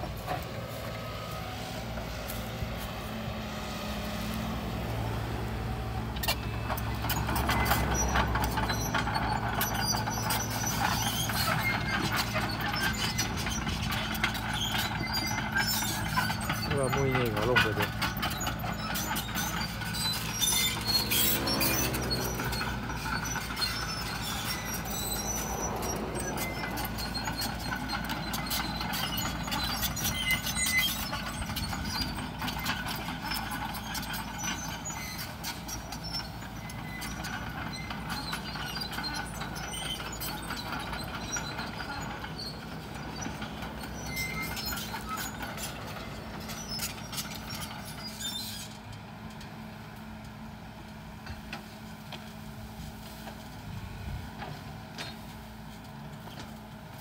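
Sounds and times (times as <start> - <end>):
excavator diesel engine: 0.0 - 57.0
steel tracks clanking and squeaking: 0.0 - 57.0
bucket scraping ground: 19.9 - 26.2.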